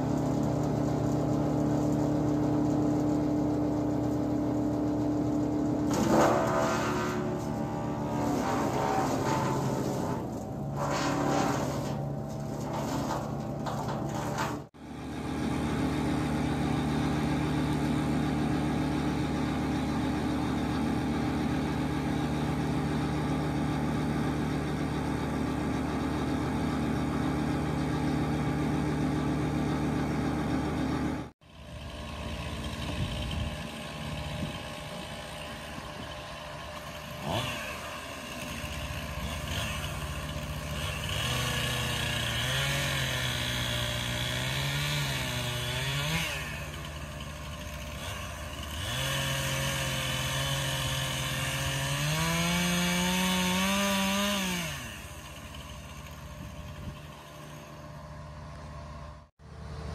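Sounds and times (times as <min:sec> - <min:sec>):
chainsaw cutting logs: 0:00.0 - 0:59.0
wood chipper engine running: 0:00.0 - 0:59.9.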